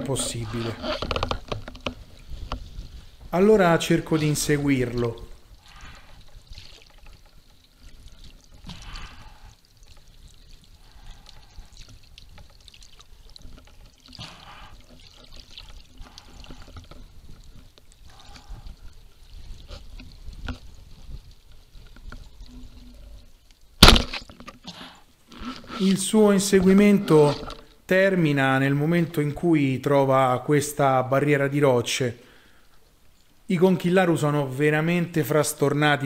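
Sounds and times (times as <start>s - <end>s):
water swishing underwater: 0.0s - 28.0s.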